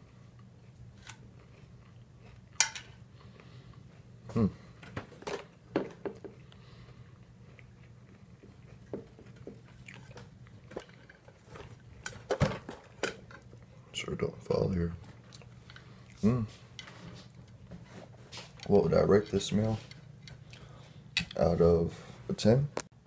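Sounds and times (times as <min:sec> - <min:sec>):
chewing: 0:00.4 - 0:04.0, 0:06.2 - 0:12.3, 0:15.0 - 0:21.4.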